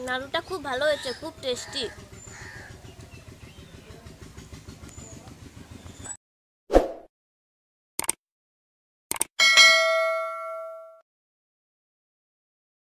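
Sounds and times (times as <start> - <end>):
low outdoor rumble: 0.0 - 6.1
quick double click: 8.0 - 8.2, 9.1 - 9.3.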